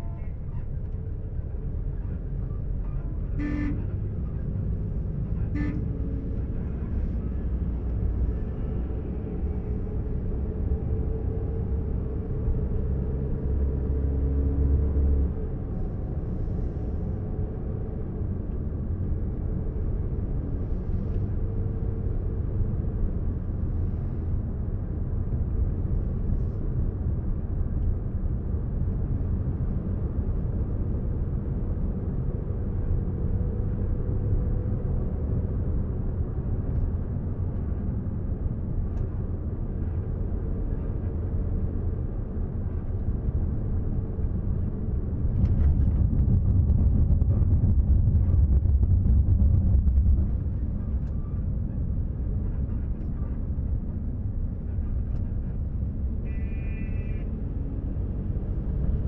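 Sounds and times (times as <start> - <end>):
faint engine hum: 0.0 - 59.0
vehicle rumbling on road: 0.0 - 59.0.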